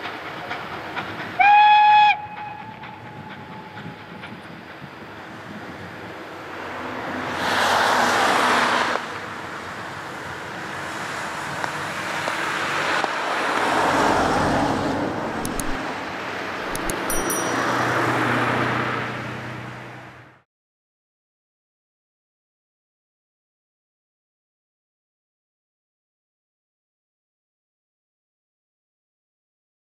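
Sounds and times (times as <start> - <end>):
vehicles passing: 6.1 - 20.4
sharp ticks: 15.4 - 15.8, 16.7 - 17.8.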